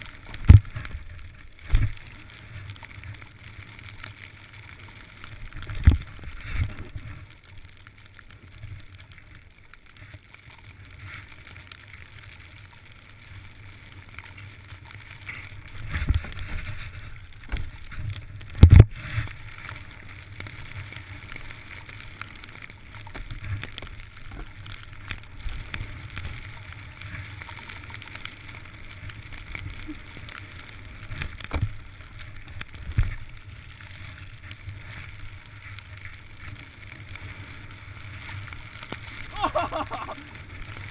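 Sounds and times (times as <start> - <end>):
snowboard sliding through snow: 14.3 - 22.8, 23.4 - 40.9.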